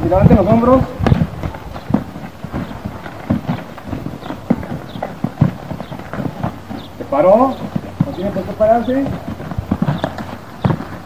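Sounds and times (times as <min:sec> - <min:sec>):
horse hooves thudding in sand: 0:00.0 - 0:11.0.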